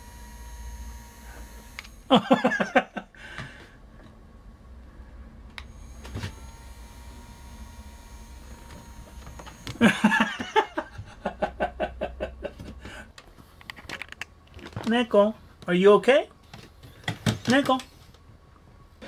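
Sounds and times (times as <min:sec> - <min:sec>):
small electric motor whirring: 0:00.0 - 0:02.2, 0:05.6 - 0:09.9.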